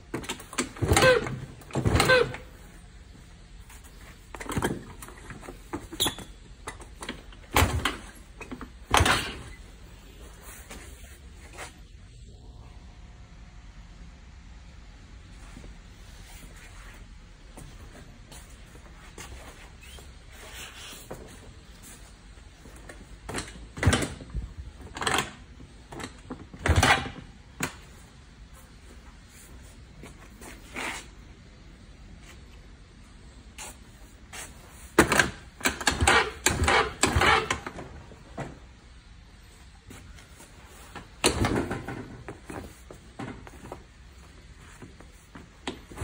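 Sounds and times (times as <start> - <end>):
scooter kick-starter clunking: 0.1 - 2.5, 4.2 - 9.6, 35.0 - 38.6, 40.9 - 43.9.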